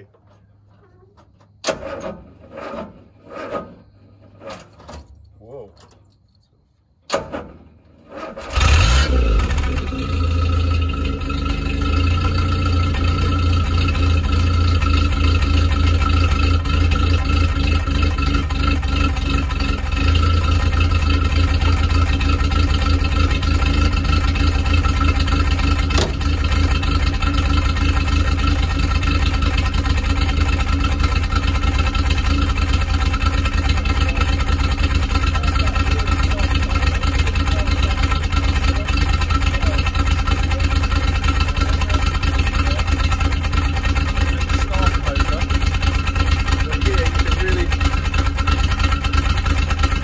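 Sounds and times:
car engine starting and running: 0:01.2 - 0:06.0, 0:07.1 - 0:50.0.

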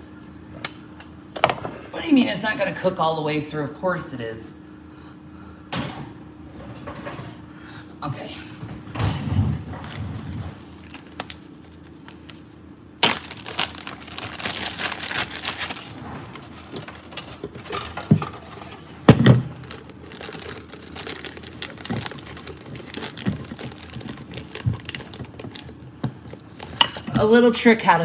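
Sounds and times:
plastic bag crinkling: 0:09.8 - 0:27.0.

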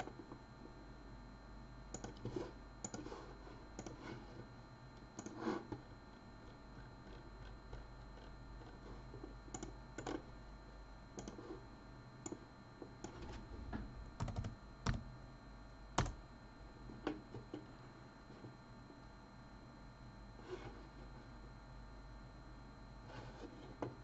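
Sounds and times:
faint steady hum: 0:00.0 - 0:24.0
computer keyboard keystrokes: 0:01.9 - 0:02.2, 0:03.8 - 0:04.0, 0:05.2 - 0:05.4, 0:09.5 - 0:10.2, 0:11.2 - 0:11.4, 0:14.2 - 0:15.1, 0:16.0 - 0:16.2.

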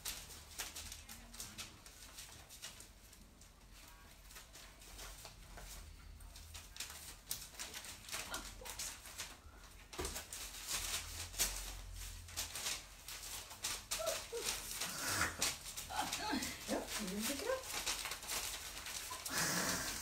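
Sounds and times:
dog moving with clicks and rustles: 0:00.0 - 0:20.0
dog whining: 0:13.9 - 0:16.4.

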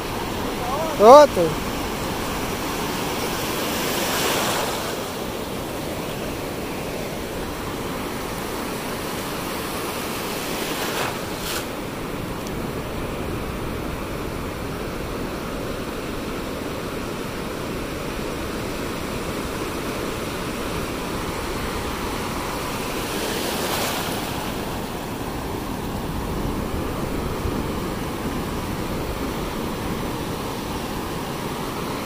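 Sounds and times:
wave breaking: 0:00.0 - 0:05.3
sea surf washing onto beach: 0:00.0 - 0:32.0.

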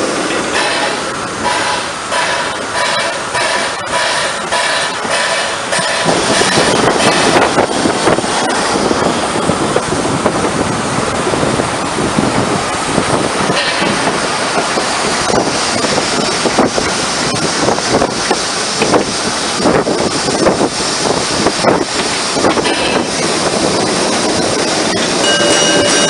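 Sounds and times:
train running noise: 0:00.0 - 0:26.0
wind on microphone: 0:05.8 - 0:26.0.

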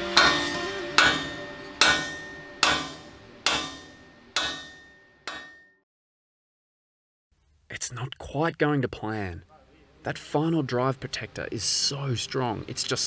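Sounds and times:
hammer ringing on steel plate: 0:00.0 - 0:05.8.

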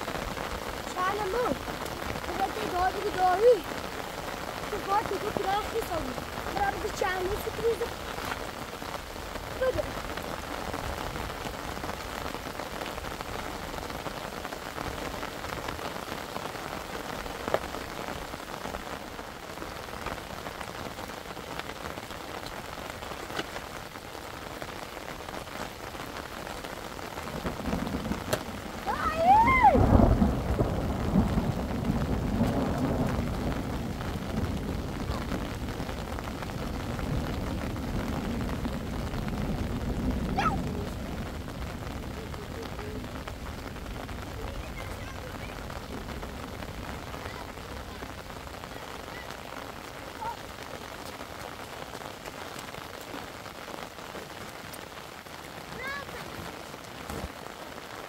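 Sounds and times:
thunder rumbling: 0:00.0 - 0:57.8
heavy rain falling: 0:00.0 - 0:58.0.

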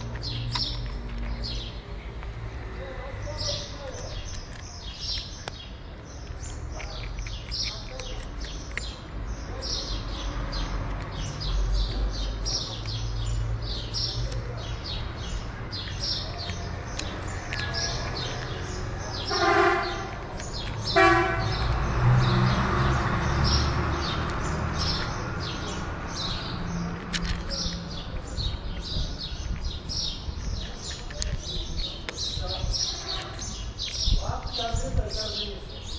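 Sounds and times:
low street rumble: 0:00.0 - 0:35.9
small birds chirping: 0:00.0 - 0:35.9
vehicle passing: 0:09.1 - 0:30.8.

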